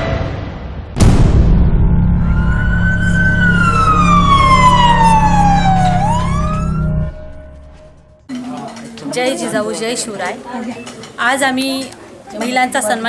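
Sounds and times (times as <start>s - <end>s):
steady low rumble: 0.9s - 8.3s
siren wail: 1.8s - 8.3s.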